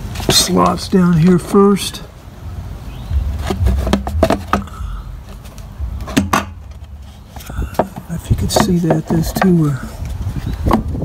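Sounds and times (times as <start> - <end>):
low rumbling handling noise: 2.4 - 11.0
fuel tank clicking into mounting: 3.4 - 9.5.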